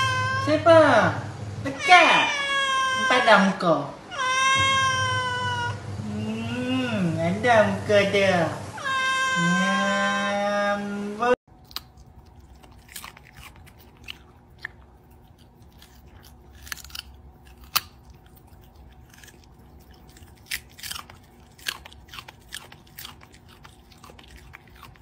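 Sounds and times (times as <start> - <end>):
dog crunching a carrot: 11.5 - 25.0.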